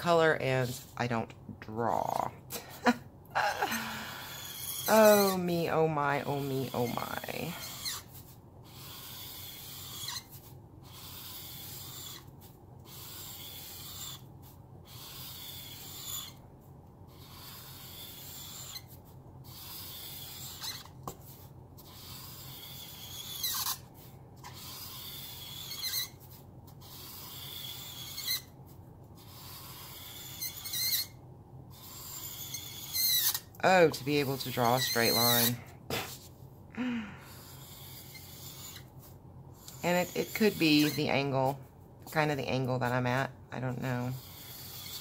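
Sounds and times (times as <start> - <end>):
marker nib squeak: 4.2 - 5.5, 6.3 - 16.4, 17.1 - 21.1, 21.8 - 28.6, 29.2 - 33.5, 34.1 - 35.6, 37.3 - 38.9, 39.6 - 42.2, 44.0 - 45.0
marker scratching on paper: 4.2 - 16.4, 17.1 - 36.4, 37.3 - 45.0.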